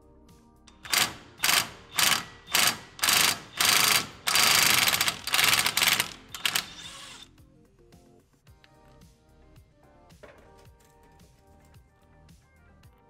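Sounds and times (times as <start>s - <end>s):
impact wrench hammering: 0.7s - 7.2s.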